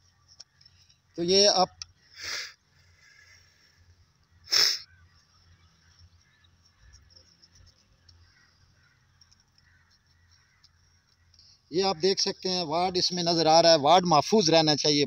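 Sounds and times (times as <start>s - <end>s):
short sharp hissing: 2.1s - 3.8s, 4.4s - 5.0s.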